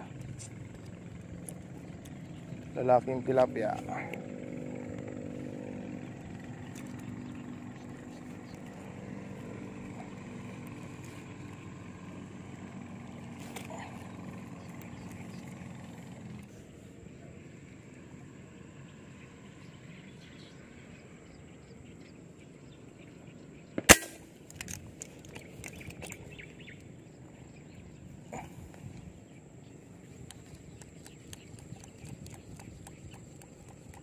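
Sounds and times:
airgun shot: 23.8 - 24.3.

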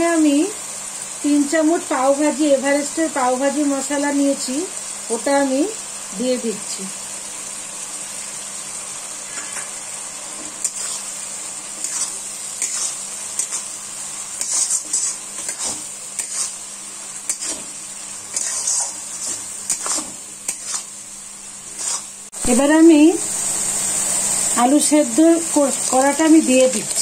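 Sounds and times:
frying sizzle: 0.0 - 27.0
spatula scraping metal pan: 11.8 - 13.7, 14.4 - 16.7, 17.3 - 20.9, 21.7 - 22.2.

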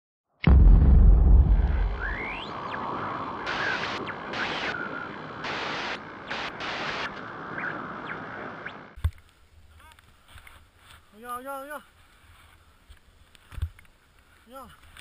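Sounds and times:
deep boom: 0.4 - 3.8
static: 0.5 - 10.5
swooping electronic tones: 1.8 - 9.0.

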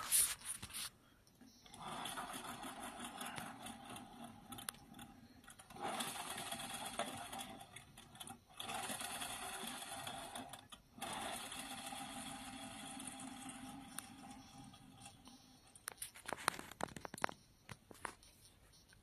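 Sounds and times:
fast mechanical rotor whirr: 1.7 - 15.8.

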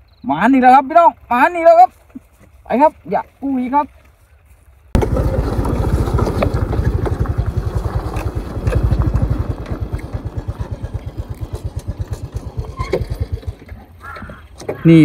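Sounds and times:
motorcycle engine running: 5.0 - 14.5.

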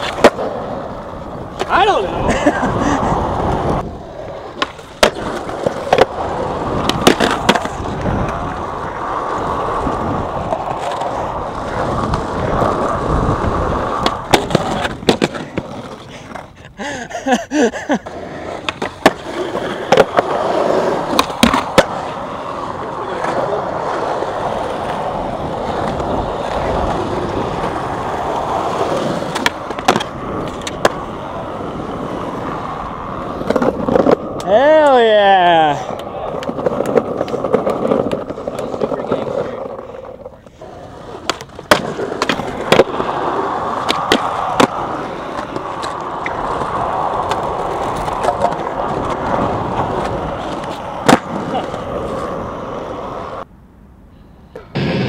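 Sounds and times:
skateboard clacks popping and landing: 0.0 - 1.8, 3.4 - 16.6, 18.5 - 22.2, 25.7 - 31.2, 33.2 - 34.6, 35.9 - 52.4
skateboard wheels rolling on concrete: 0.0 - 55.0.

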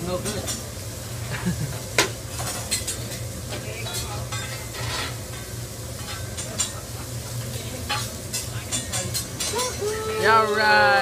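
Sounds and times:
egg frying on griddle: 0.0 - 11.0
metal spatula scraping steel: 4.3 - 5.4.

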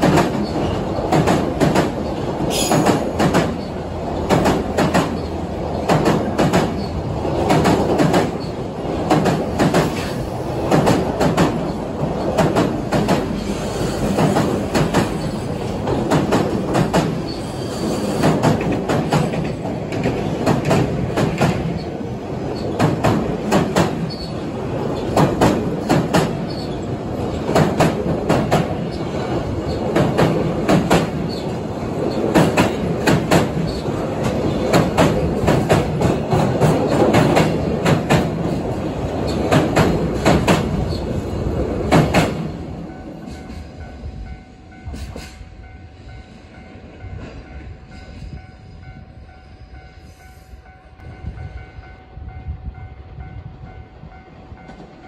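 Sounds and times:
train wheels clattering over joints: 0.0 - 41.1
train rumble: 0.0 - 55.0.

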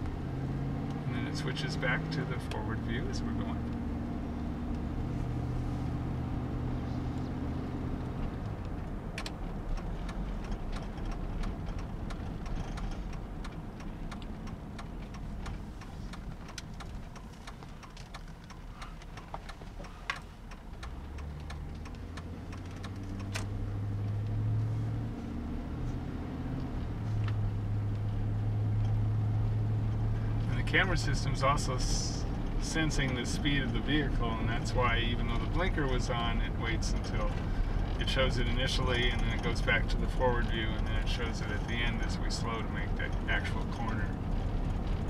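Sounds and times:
low engine hum: 0.0 - 45.0
road rumble: 0.0 - 45.0
faint ticks: 8.4 - 23.5.

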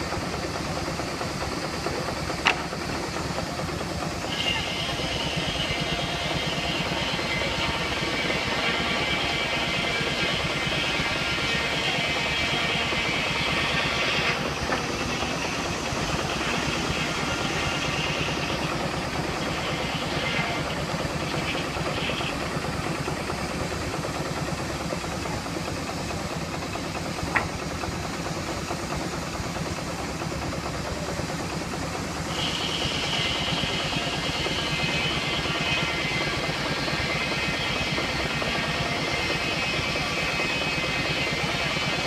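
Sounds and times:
steam engine beating: 0.0 - 42.0
high hiss: 32.0 - 39.1.

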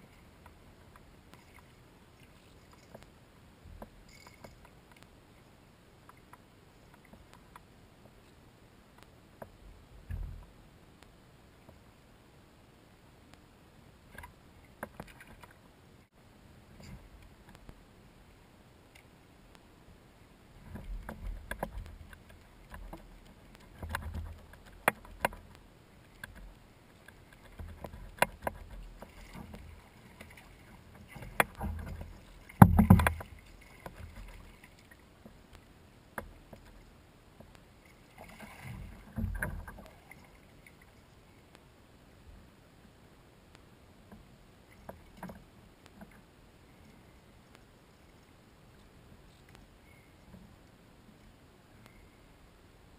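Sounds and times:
fishing reel and hull clicks: 3.8 - 5.0.

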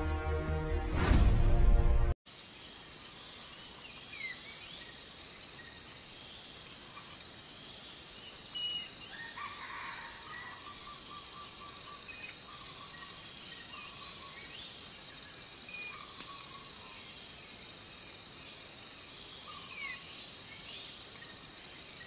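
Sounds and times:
music: 0.0 - 2.2
high insect drone: 2.3 - 22.0
bird calls: 8.4 - 14.8.

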